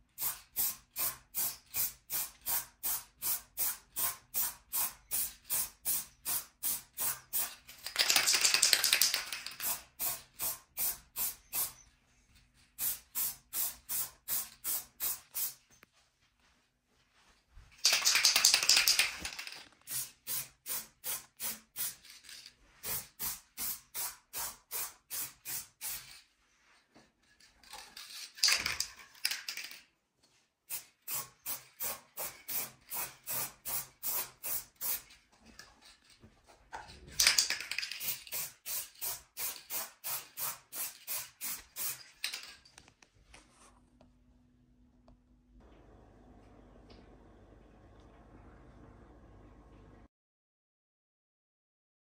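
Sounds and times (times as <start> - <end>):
spray can ball rattling: 0.2 - 11.8, 12.8 - 15.6, 17.8 - 26.3, 27.6 - 29.9, 30.7 - 35.2, 37.1 - 42.8
spray can hissing: 0.2 - 11.8, 12.8 - 15.6, 17.8 - 22.1, 22.8 - 26.2, 30.7 - 35.1, 37.2 - 42.2.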